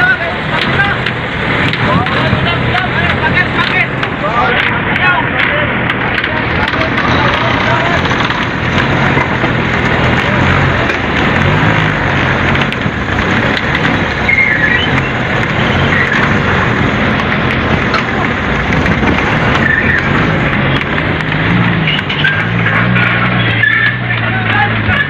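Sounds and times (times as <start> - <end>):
boat engine running: 0.0 - 25.0
deck noise: 0.0 - 25.0
water wash: 0.0 - 25.0.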